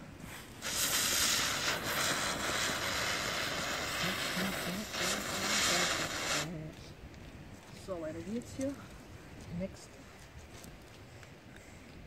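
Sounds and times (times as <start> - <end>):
firework spraying sparks hiss: 0.0 - 6.7.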